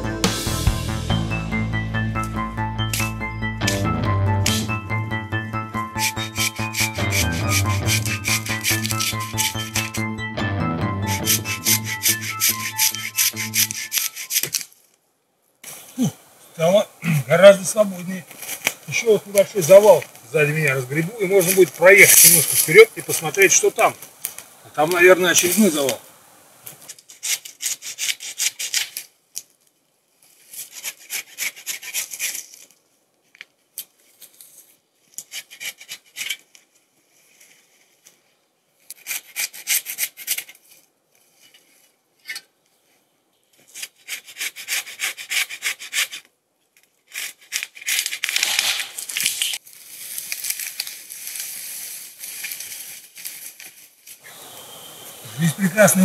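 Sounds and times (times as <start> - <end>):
hand saw cutting wood: 6.0 - 9.9, 11.2 - 14.6, 27.1 - 29.0, 30.6 - 32.5, 35.2 - 36.4, 38.9 - 40.6, 43.7 - 46.3, 47.1 - 49.1.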